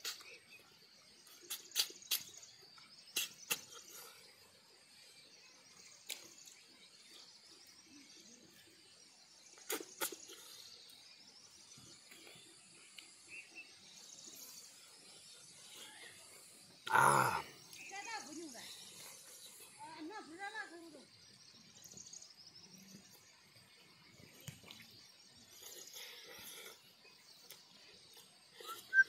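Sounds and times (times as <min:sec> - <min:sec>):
mouth smacks and clicks eating: 0:00.0 - 0:00.4, 0:01.2 - 0:04.0, 0:09.6 - 0:10.5, 0:27.4 - 0:29.0
high drone of insects: 0:00.0 - 0:29.0.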